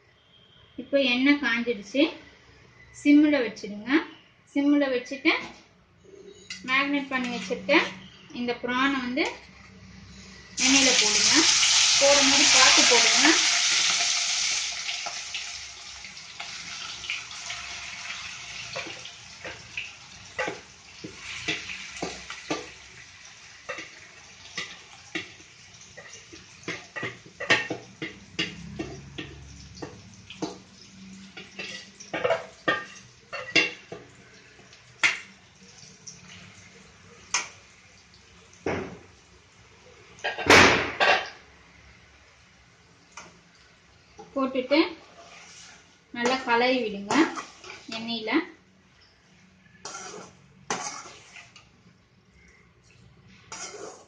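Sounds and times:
prawns sizzling in oil: 0:09.9 - 0:40.4, 0:42.9 - 0:54.0
steel spoon scraping pan: 0:20.4 - 0:22.8, 0:45.1 - 0:48.1, 0:49.7 - 0:51.7, 0:53.4 - 0:54.0.

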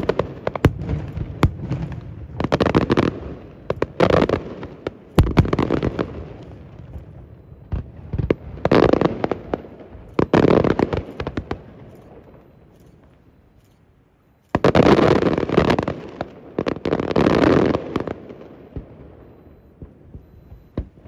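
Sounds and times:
fireworks exploding: 0:00.0 - 0:13.4, 0:14.5 - 0:21.0.

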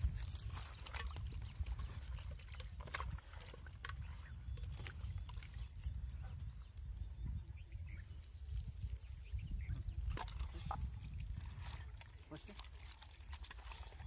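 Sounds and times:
hands squishing raw chicken in water: 0:10.0 - 0:14.0.

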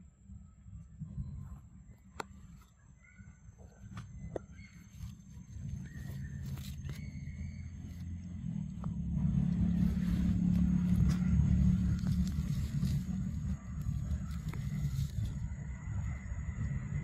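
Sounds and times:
low rumble: 0:04.1 - 0:17.0.

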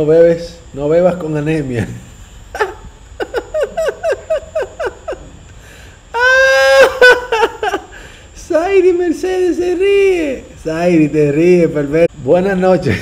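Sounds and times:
man laughing hard: 0:02.5 - 0:05.5, 0:06.2 - 0:08.0.

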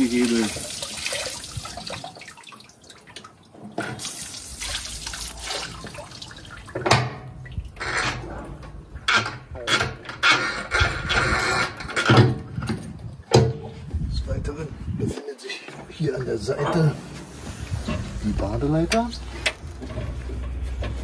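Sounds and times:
shower spraying into water: 0:00.0 - 0:02.7, 0:04.0 - 0:06.8
shower hose knocks and rattles: 0:06.7 - 0:13.7.

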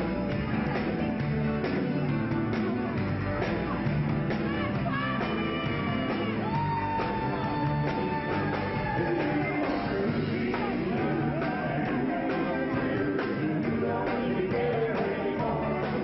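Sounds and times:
rock band playing: 0:00.0 - 0:16.0
person singing: 0:04.7 - 0:16.0.

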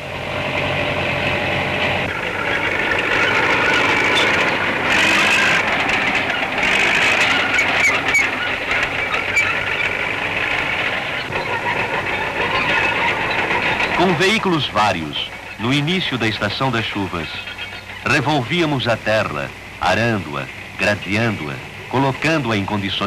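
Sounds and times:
tractor engines clattering: 0:00.0 - 0:23.0
scattered knocks: 0:02.1 - 0:15.8.

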